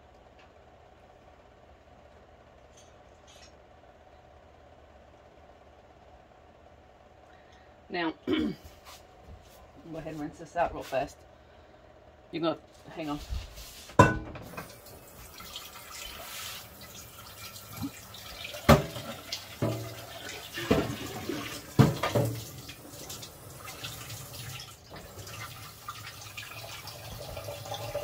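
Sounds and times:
pan clunking against sink: 14.0 - 14.6, 20.6 - 22.4
tap water running into sink: 14.4 - 28.0.

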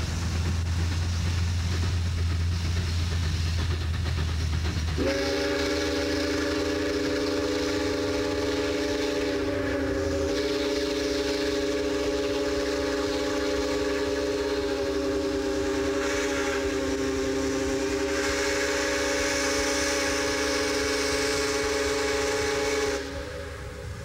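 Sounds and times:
steam whistle blast: 5.0 - 24.0.

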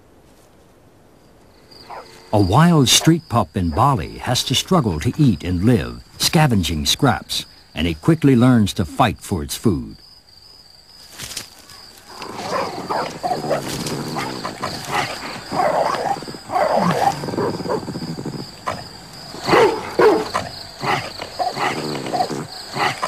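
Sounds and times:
dogs growling and snarling: 12.1 - 23.0.

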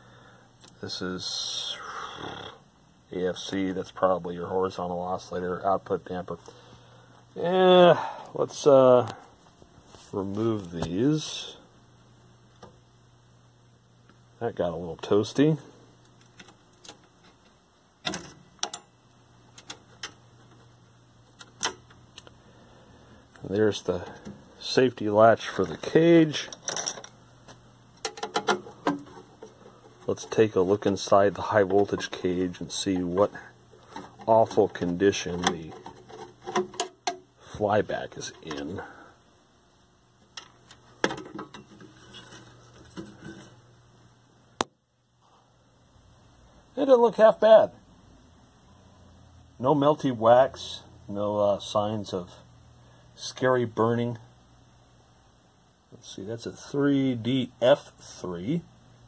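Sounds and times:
faint low hum: 0.0 - 59.0
vacuum tubes clicking and knocking: 16.0 - 22.4, 26.4 - 37.3, 40.2 - 43.6.

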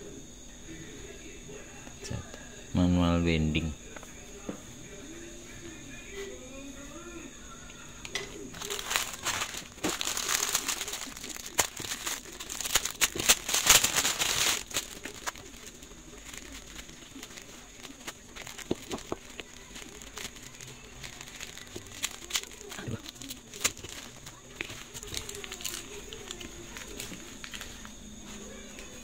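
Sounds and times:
plastic packaging crinkling: 8.2 - 29.0
tissue paper rustling: 8.5 - 29.0.

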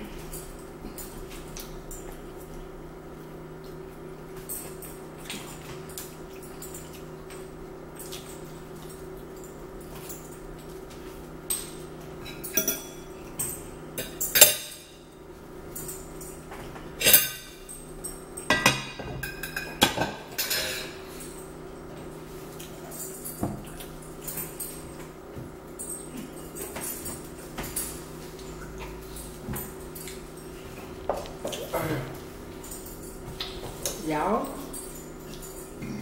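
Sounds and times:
cutlery clinking on plates: 11.5 - 14.9, 18.4 - 21.0.

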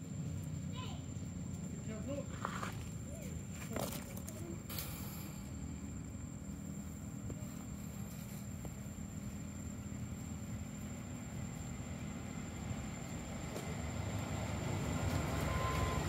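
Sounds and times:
low mechanical hum: 0.0 - 16.0
thin high whine: 4.6 - 12.0, 15.0 - 16.0.

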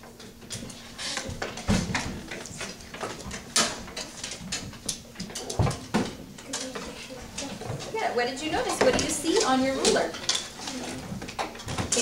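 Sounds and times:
rulers tapping on desks: 7.7 - 10.4.

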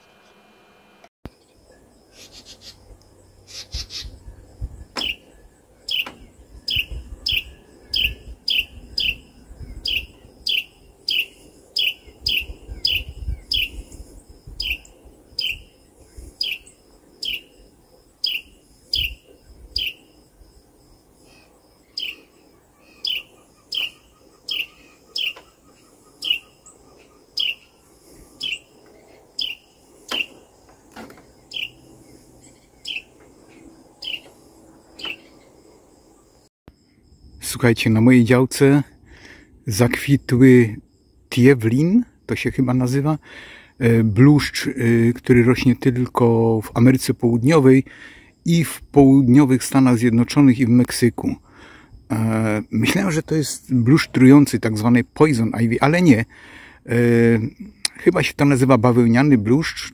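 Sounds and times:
wren chip calls: 1.3 - 20.2, 21.2 - 36.4.

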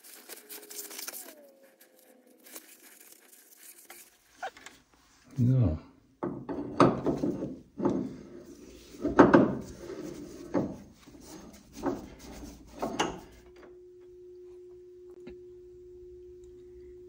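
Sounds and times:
steady hum: 8.2 - 17.0.

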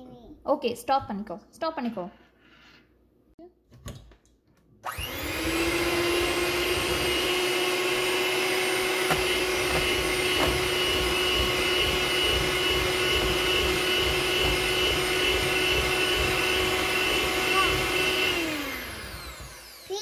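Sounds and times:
electric hand mixer whining: 4.8 - 20.0.

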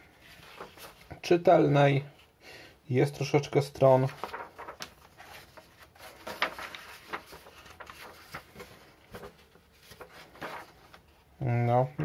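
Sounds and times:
paper pages turning: 0.1 - 1.2, 3.8 - 11.3.

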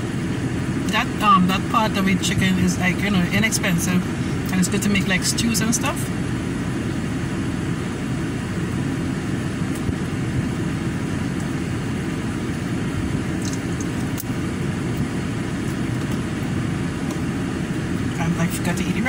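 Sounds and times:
car engine rumble inside cabin: 0.0 - 19.0
faint clicks of eating: 13.4 - 14.3.

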